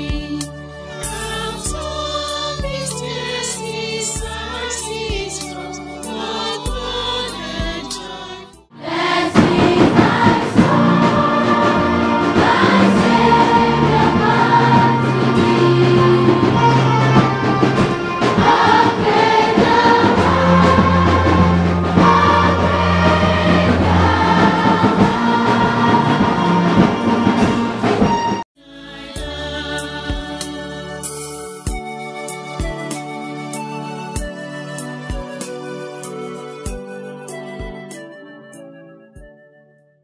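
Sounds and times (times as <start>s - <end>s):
choir singing over a beat: 0.0s - 31.4s.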